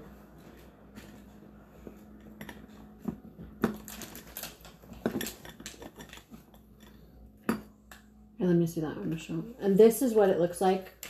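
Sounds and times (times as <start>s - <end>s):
small items clinking on hard surface: 3.6s - 6.5s.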